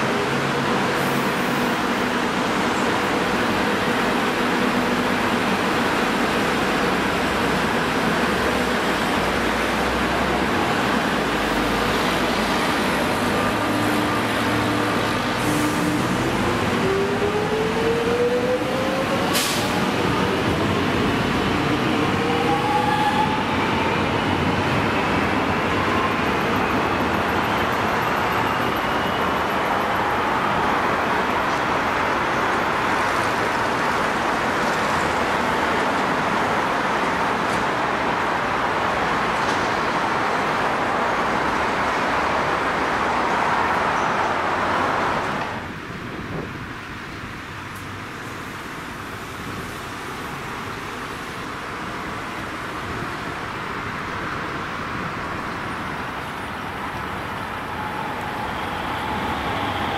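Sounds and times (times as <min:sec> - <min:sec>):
train rolling rumble: 0:00.0 - 0:59.9.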